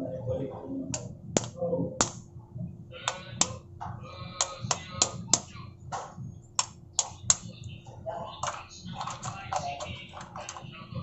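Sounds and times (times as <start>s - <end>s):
crab claws cracking: 1.0s - 2.2s, 3.1s - 3.6s, 4.4s - 5.6s, 6.6s - 7.6s, 8.4s - 10.7s.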